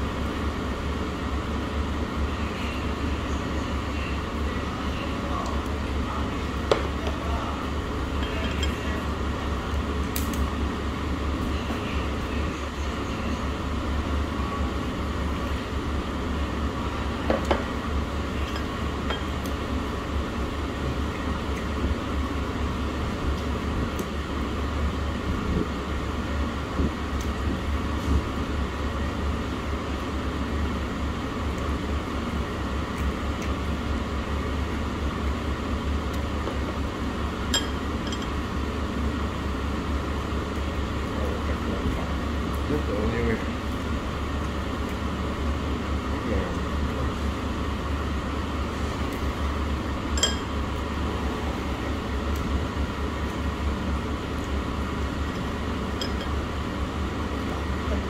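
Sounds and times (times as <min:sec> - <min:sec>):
low hum of restaurant room: 0:00.0 - 0:58.0
dishes and cutlery clinking: 0:50.2 - 0:50.5.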